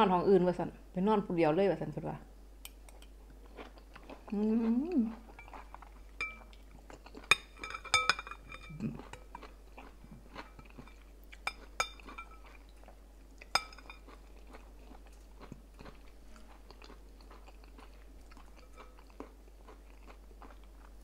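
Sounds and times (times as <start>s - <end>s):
chewing with mouth clicks: 2.7s - 7.6s, 8.6s - 21.0s
spoon clinking glass bowl: 6.2s - 6.5s, 7.3s - 9.2s, 11.4s - 12.5s, 13.5s - 14.0s.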